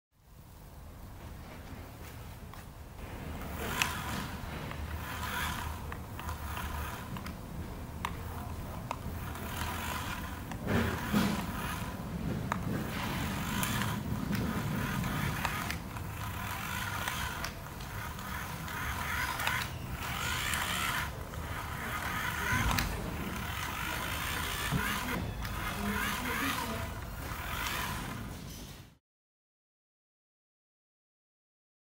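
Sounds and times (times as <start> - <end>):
toy car motor whirring: 3.3 - 28.4
toy clicking and rattling on floor: 3.4 - 28.2.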